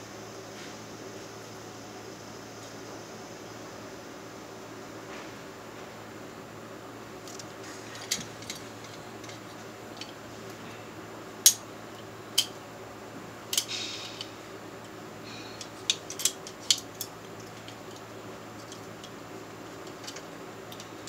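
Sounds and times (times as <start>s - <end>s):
steady low hum: 0.0s - 21.0s
metallic clicks and clinks of tools: 13.5s - 15.0s, 15.6s - 19.2s.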